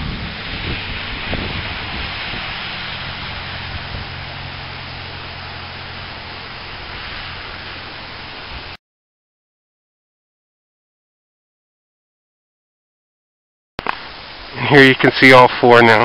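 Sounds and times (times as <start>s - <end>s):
low steady hum: 0.0s - 8.8s
steady hissing noise: 0.0s - 8.8s, 13.8s - 16.0s.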